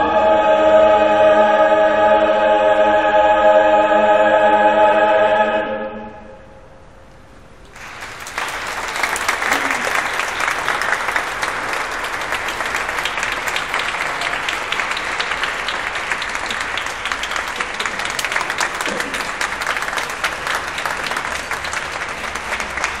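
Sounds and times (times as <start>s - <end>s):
audience applauding: 7.7s - 23.0s
voices: 9.0s - 23.0s.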